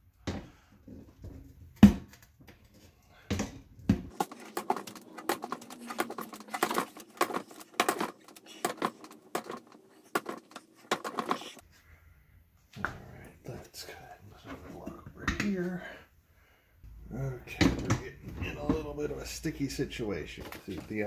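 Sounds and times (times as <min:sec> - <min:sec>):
rubber rubbing on wheel: 0:04.1 - 0:11.6.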